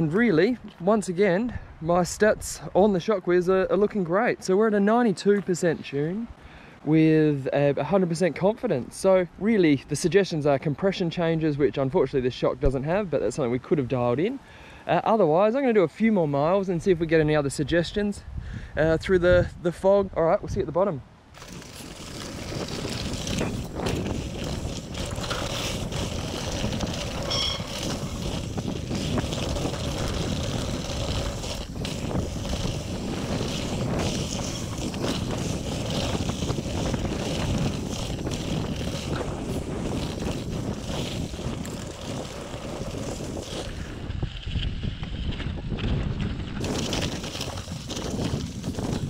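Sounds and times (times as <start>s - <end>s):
wind buffeting microphone: 16.8s - 49.0s
tyre roar on dirt trail: 21.3s - 49.0s.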